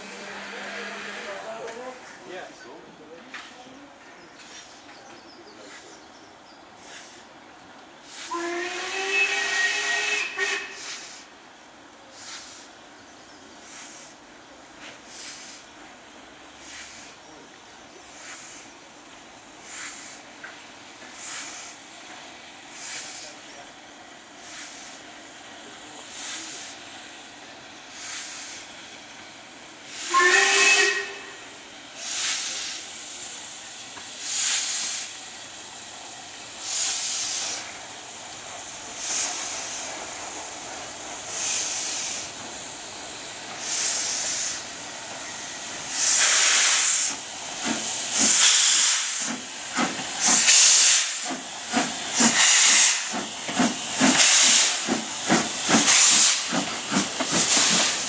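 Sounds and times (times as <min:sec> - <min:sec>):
steam locomotive exhaust beats: 0:06.7 - 0:12.9, 0:13.5 - 0:58.0
train whistle blast: 0:08.2 - 0:11.0, 0:30.0 - 0:31.5.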